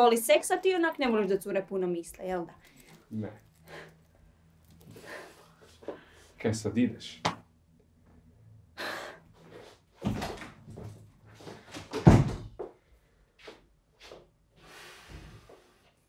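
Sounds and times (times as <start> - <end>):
door slamming shut: 11.9 - 12.5.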